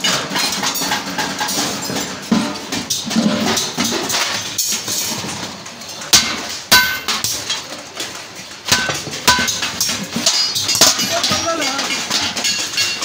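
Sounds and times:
hammer striking sheet metal: 6.1s - 7.5s, 8.7s - 11.4s.

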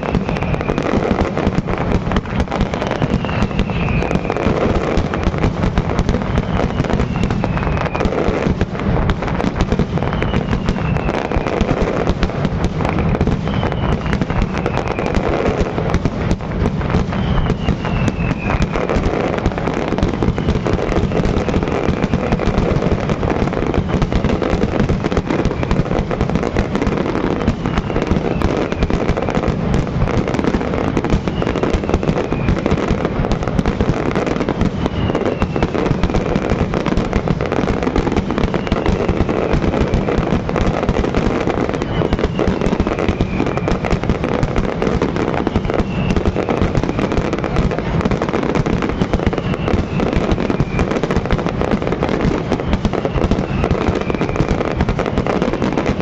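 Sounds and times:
fireworks bursting and crackling: 0.0s - 56.0s.

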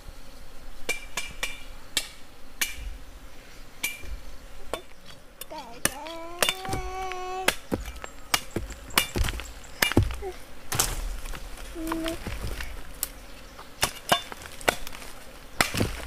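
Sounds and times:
machete chopping stems: 4.7s - 16.0s.

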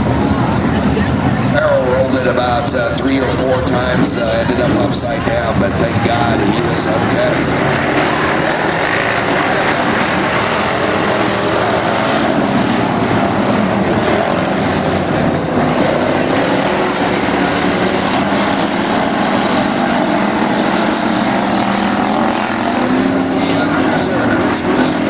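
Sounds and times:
race car engines droning: 0.0s - 25.0s.

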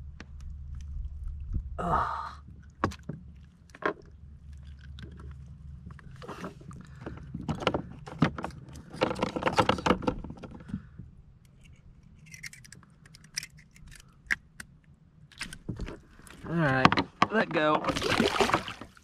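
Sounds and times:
low steady rumble: 0.0s - 16.8s
fishing gear clicking on plastic: 11.5s - 17.2s.

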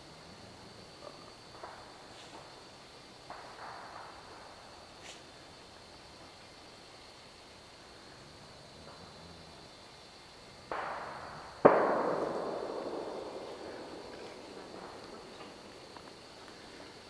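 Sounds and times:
sharp bangs with long echo: 3.2s - 4.7s, 10.7s - 17.0s.

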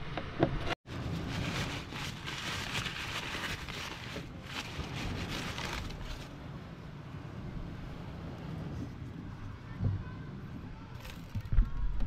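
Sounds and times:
paper crinkling and rustling: 0.9s - 6.4s.

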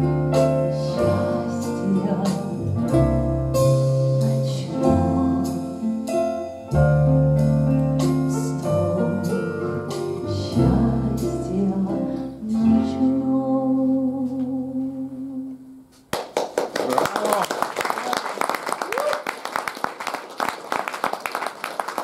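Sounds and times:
audience applause: 16.2s - 22.0s.

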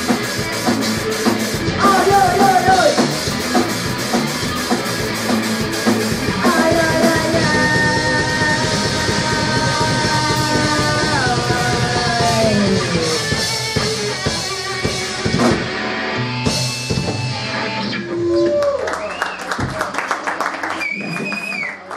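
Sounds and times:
drum and cymbal hits: 0.0s - 17.6s
live rock band playing loudly: 0.0s - 18.6s.

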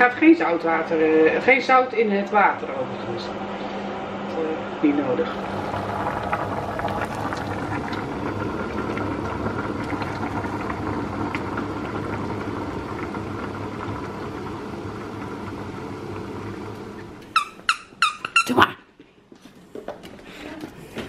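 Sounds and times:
low hum: 2.6s - 17.2s
water boiling in saucepan: 5.3s - 17.3s.

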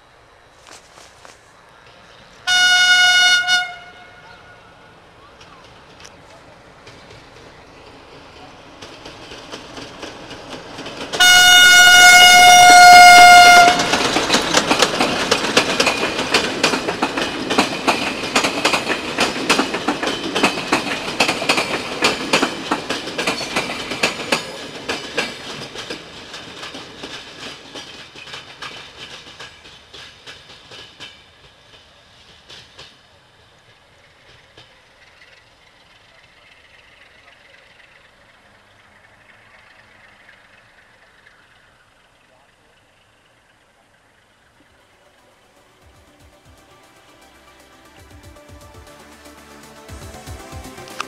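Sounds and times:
train horn blast: 2.4s - 4.9s, 11.2s - 14.1s
train wheels clickety-clack: 5.2s - 51.0s.

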